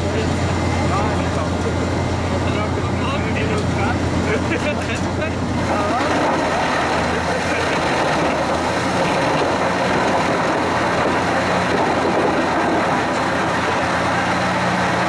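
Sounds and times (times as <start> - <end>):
wood chipper machine hum: 0.0 - 15.0
wood chips pelting metal skip: 5.4 - 15.0.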